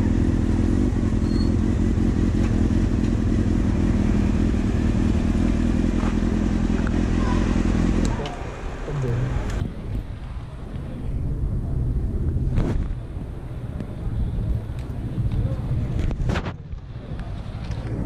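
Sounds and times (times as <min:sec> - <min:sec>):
motorcycle engine running: 0:00.0 - 0:09.9.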